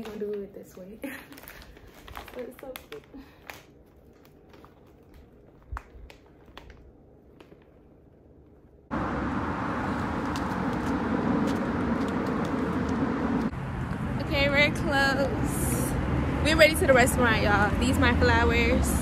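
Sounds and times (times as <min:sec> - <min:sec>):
rush of vehicle noise: 0:08.9 - 0:19.0.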